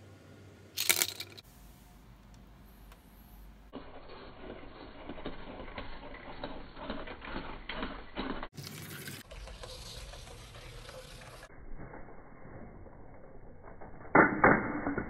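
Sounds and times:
toy motor whirring through gears: 3.8 - 11.5.

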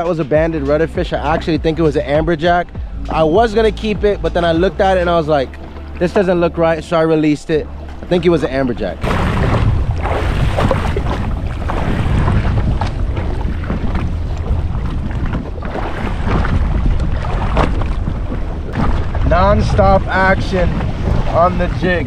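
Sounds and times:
water slapping against hull: 0.0 - 22.0
wind rushing over microphone: 7.6 - 22.0.

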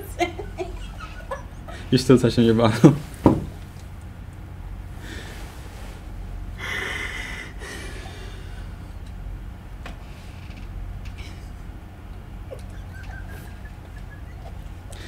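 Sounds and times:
low room hum: 0.0 - 15.0
person exhaling through nose: 6.6 - 8.8.

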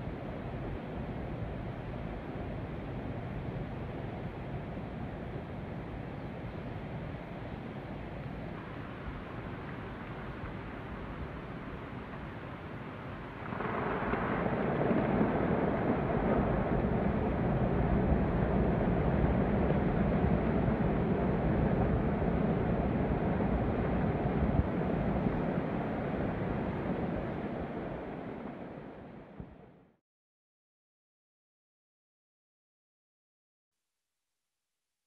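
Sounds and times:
snow avalanche rushing rumble: 13.4 - 28.9.

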